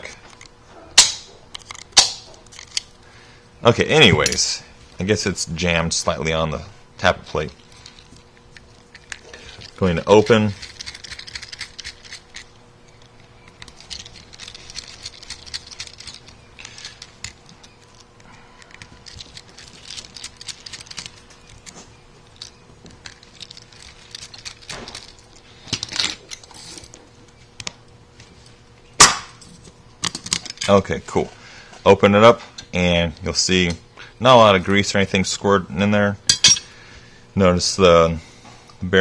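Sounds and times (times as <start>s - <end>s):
small metallic clicks and scrapes: 7.6s - 27.0s.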